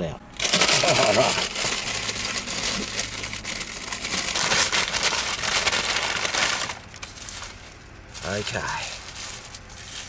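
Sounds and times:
paper packaging crinkling: 0:00.4 - 0:10.0.

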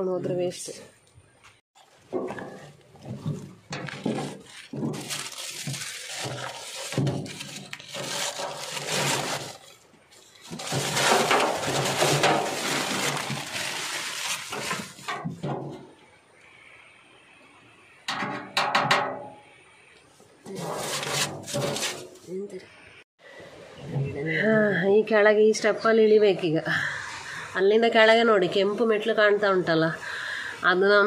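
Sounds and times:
newspaper crumpling and tearing: 0:04.0 - 0:15.1, 0:20.6 - 0:22.2.

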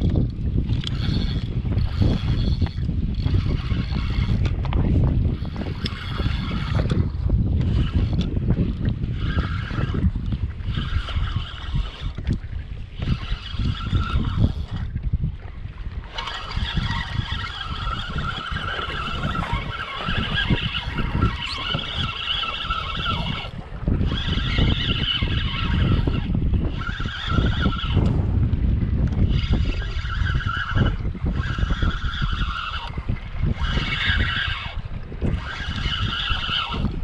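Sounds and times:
fishing reel whirring: 0:00.0 - 0:37.0
water rumbling: 0:00.0 - 0:37.0
wind: 0:00.0 - 0:37.0.

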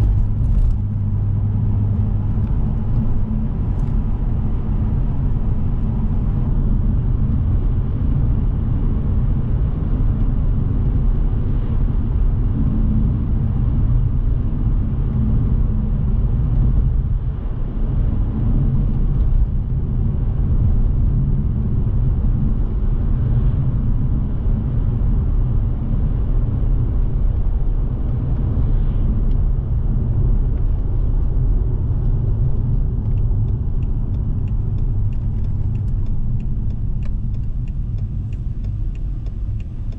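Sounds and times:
car cabin engine and tyre rumble: 0:00.0 - 0:39.9
faint ticking: 0:33.1 - 0:39.9.

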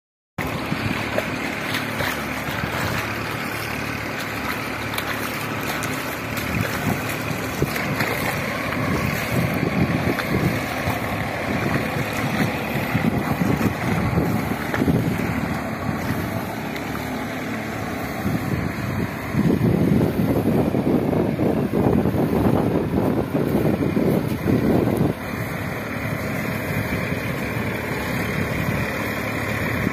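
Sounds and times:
distant tractor engine drone: 0:00.4 - 0:29.9
wind buffeting microphone: 0:00.4 - 0:29.9.

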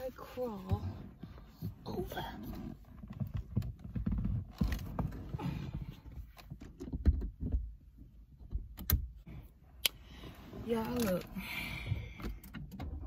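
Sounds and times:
person climbing over car seats: 0:00.0 - 0:09.4.

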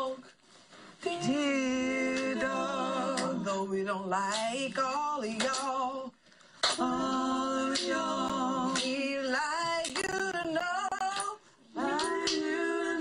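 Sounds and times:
woman singing with vibrato: 0:01.0 - 0:04.0, 0:06.8 - 0:13.0.

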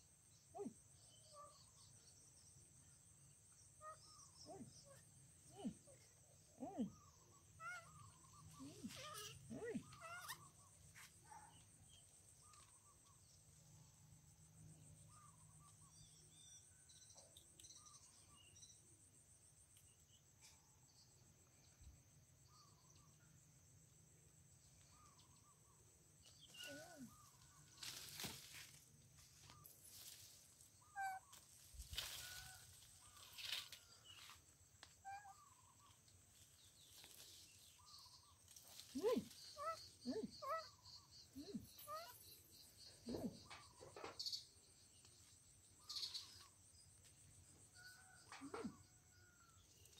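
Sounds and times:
bird chirps: 0:36.6 - 0:46.6.

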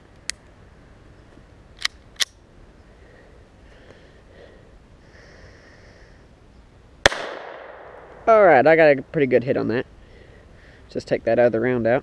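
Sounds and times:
pistol metallic clicks: 0:01.8 - 0:02.4
magazine slammed into pistol: 0:07.1 - 0:07.9.

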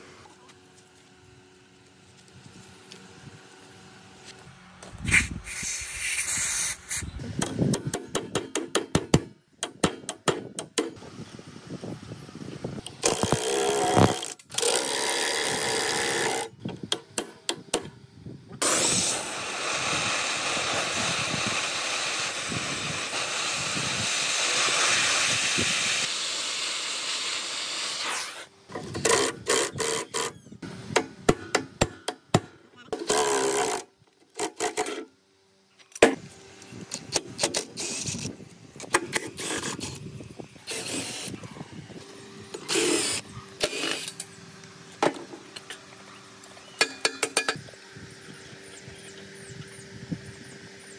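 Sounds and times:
gas torch hissing: 0:05.0 - 0:07.3, 0:18.6 - 0:28.5.

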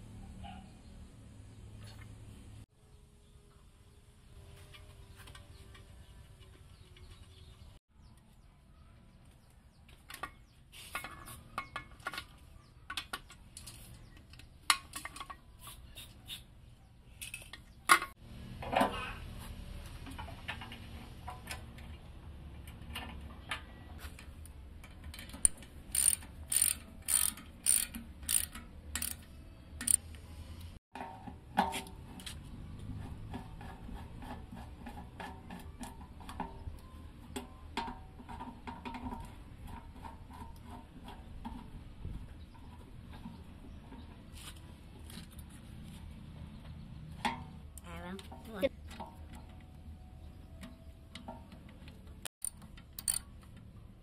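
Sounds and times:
tools and metal parts clinking: 0:17.1 - 0:18.2, 0:22.6 - 0:30.0, 0:50.5 - 0:53.6
ratchet wrench clicking: 0:25.4 - 0:30.1, 0:52.4 - 0:53.2.

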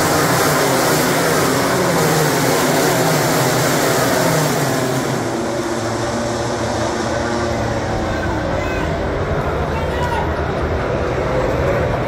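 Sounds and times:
race motorcycles passing at high revs: 0:00.0 - 0:08.5.

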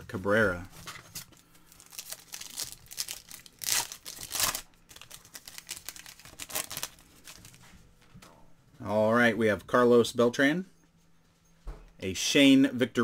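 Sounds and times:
foil wrapper crinkling: 0:01.1 - 0:07.6.

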